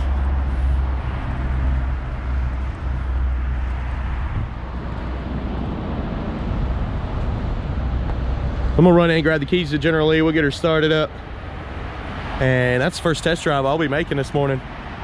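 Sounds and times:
wind on microphone: 0.0s - 9.0s
road traffic hum: 0.0s - 15.0s.

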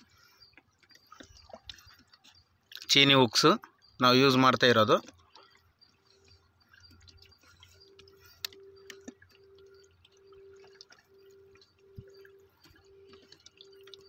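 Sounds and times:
faint water sounds: 0.0s - 14.0s
faint hum: 5.9s - 14.0s.

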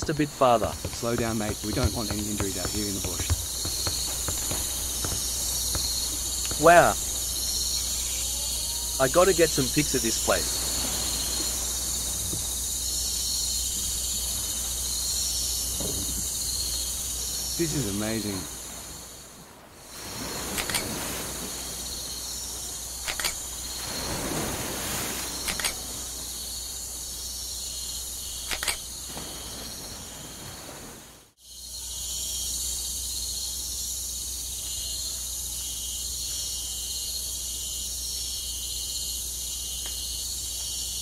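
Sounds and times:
insects chirping: 0.0s - 41.0s
sharp double clicks: 23.0s - 23.4s, 28.4s - 28.8s.

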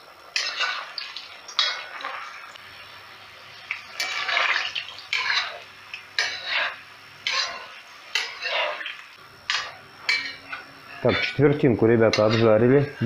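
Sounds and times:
onions sizzling in oil: 0.0s - 13.0s.

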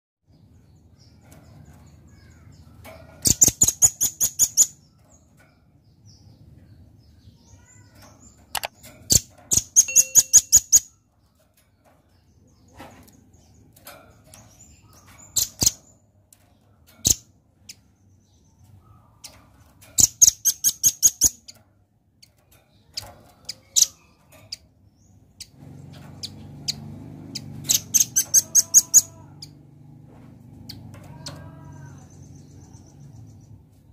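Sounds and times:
bird calling high rattles: 0.5s - 33.9s
single bird chips: 8.0s - 10.9s.

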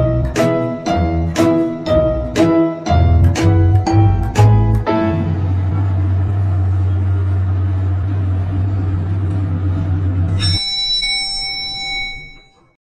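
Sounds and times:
elevator humming: 0.0s - 12.8s
elevator arrival chime: 10.3s - 12.8s.

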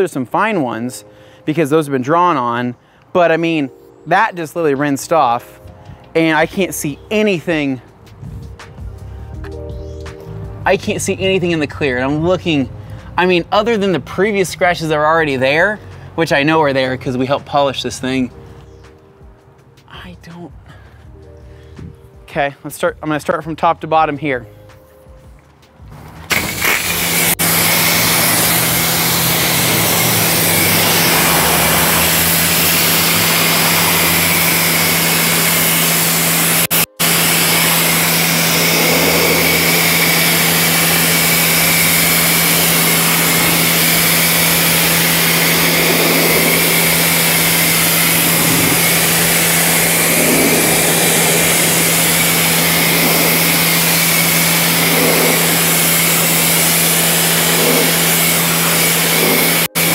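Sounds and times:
pressure washer motor hum: 25.9s - 59.9s
water jet spraying: 26.0s - 59.9s.

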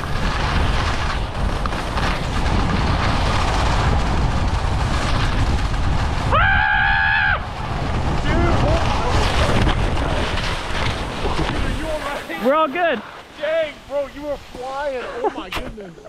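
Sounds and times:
ski edges scraping hard snow: 0.0s - 6.8s, 7.4s - 15.8s
wind buffeting microphone: 0.0s - 13.0s
person screaming: 6.3s - 7.4s.

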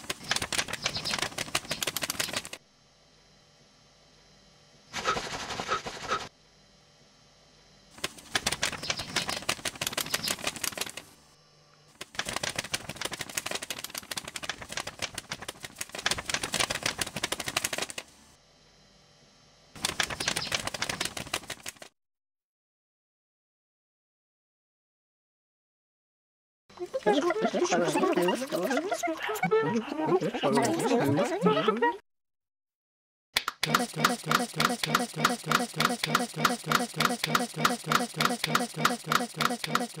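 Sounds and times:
rapid dense clicking: 0.0s - 2.6s, 8.0s - 11.0s, 12.0s - 18.0s.

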